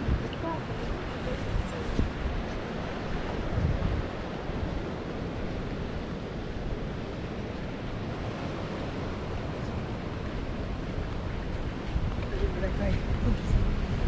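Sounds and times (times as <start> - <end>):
sea surf breaking on shore: 0.0 - 14.0
wind rumbling on microphone: 0.0 - 14.0.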